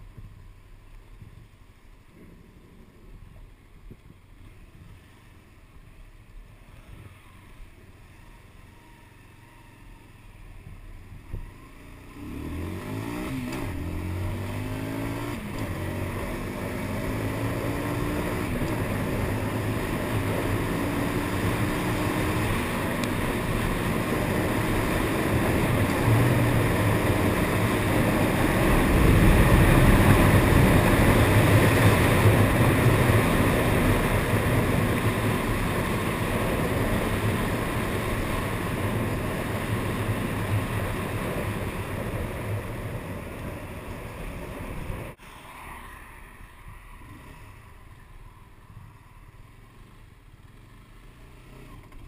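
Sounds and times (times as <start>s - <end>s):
motorcycle engine running: 0.0s - 45.2s, 47.4s - 52.0s
wind rushing over microphone: 12.9s - 45.2s.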